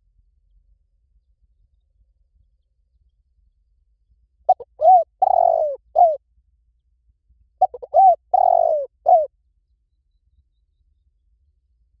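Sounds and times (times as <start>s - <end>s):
dove cooing: 4.5s - 6.2s, 7.6s - 9.3s.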